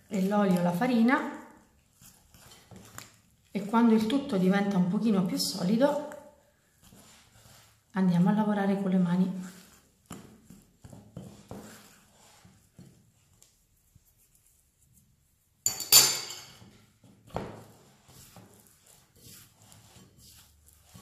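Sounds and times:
hands rustling dough: 0.0s - 15.7s, 16.5s - 21.0s
fork scraping in glass bowl: 2.0s - 3.2s, 18.0s - 21.0s
metal clink on glass: 15.7s - 16.6s.

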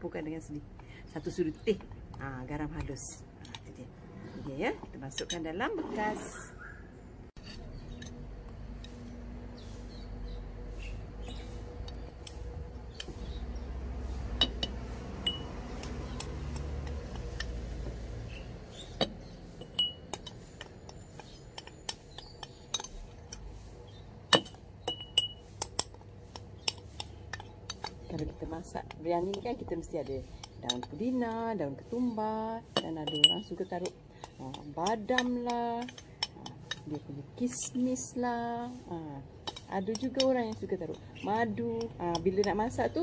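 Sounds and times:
metal spoon clinking on ceramic: 24.8s - 25.9s, 33.0s - 33.5s.

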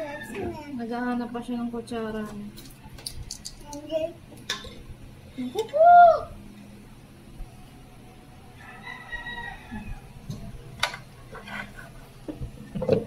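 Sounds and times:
rooster crowing faintly: 8.6s - 10.2s.

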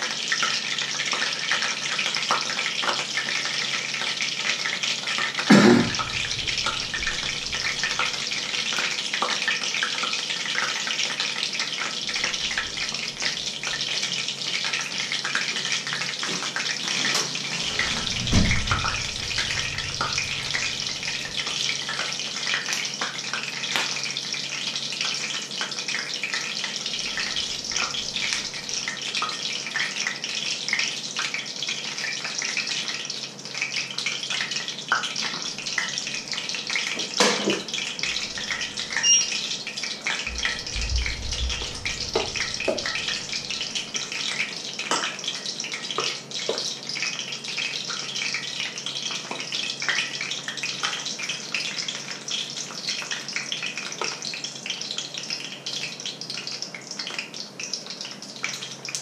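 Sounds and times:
water boiling hard in pots: 0.0s - 59.0s
knocks: 40.3s - 43.6s.

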